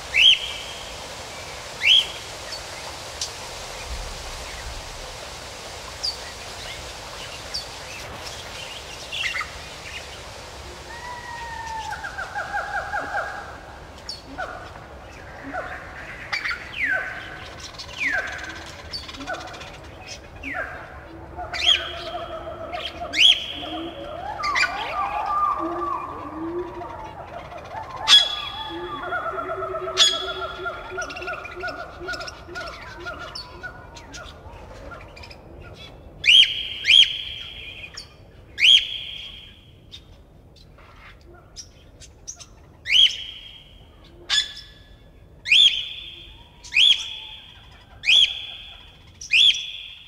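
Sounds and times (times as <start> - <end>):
loud sweeping animal calls: 0.0 - 37.9
falling whistle-like animal call: 10.8 - 13.4, 21.6 - 32.3, 38.6 - 39.6, 45.5 - 50.0.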